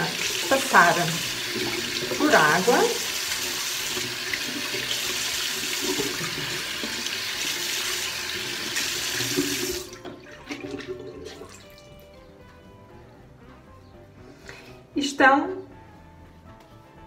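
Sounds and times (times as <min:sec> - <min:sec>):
tap running into basin: 0:00.0 - 0:12.0
water dripping: 0:08.4 - 0:12.6.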